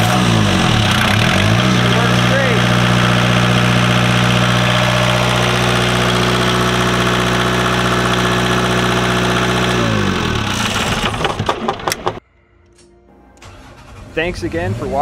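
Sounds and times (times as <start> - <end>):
diesel generator running: 0.0 - 12.2
generator clattering to a stop: 10.6 - 12.2.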